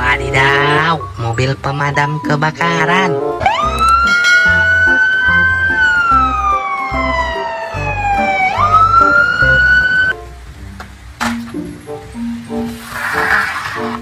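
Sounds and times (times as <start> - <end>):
background music with steady beat: 0.0 - 12.7
fire engine siren wailing: 3.4 - 10.2.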